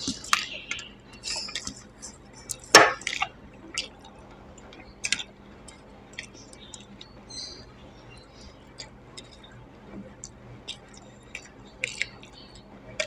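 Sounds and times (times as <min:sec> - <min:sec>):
chewing with lip smacks: 0:00.0 - 0:13.0.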